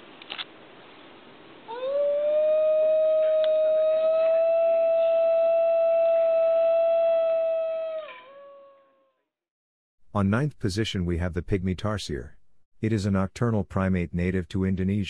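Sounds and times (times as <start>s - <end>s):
dog howling: 1.7s - 9.2s.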